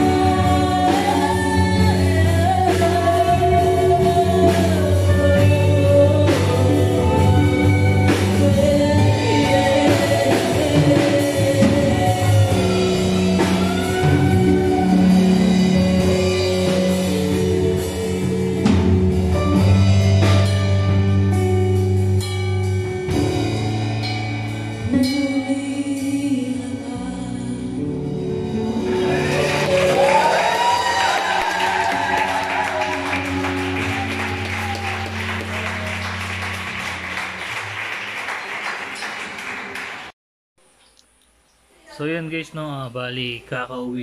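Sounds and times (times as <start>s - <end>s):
women singing lead: 0.0s - 19.3s
live rock band playing: 0.0s - 39.8s.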